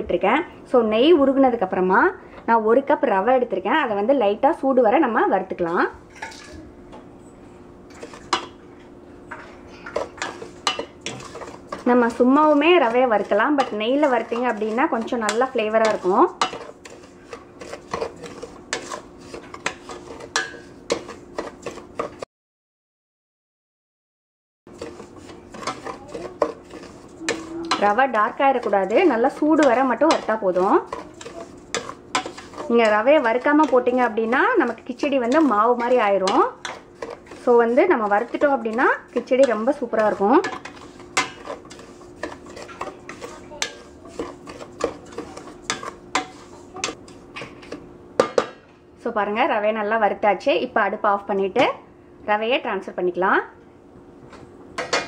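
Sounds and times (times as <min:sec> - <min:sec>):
spoon scraping a metal pot: 0:09.8 - 0:22.2, 0:24.7 - 0:47.8.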